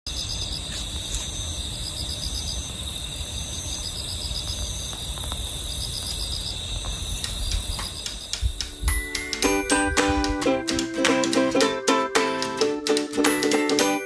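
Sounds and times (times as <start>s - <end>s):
insects chirring: 0.1s - 10.6s
pulsing insect trill: 0.1s - 10.6s.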